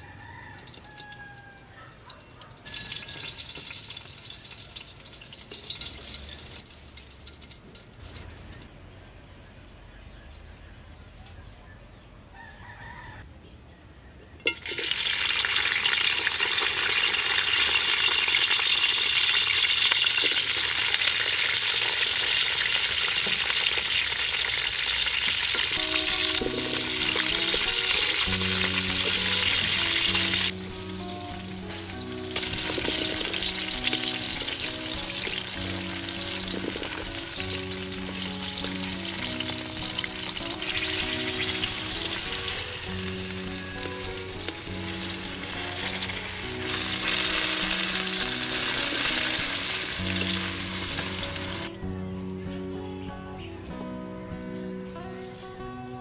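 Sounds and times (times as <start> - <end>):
vegetables sizzling in hot oil: 2.7 - 8.6, 14.5 - 51.7
background music with melody: 25.2 - 56.0.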